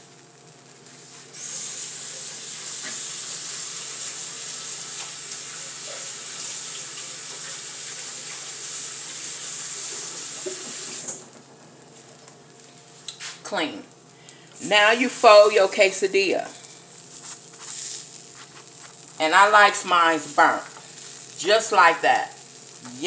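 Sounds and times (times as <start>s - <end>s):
kitchen tap running: 1.5s - 11.3s.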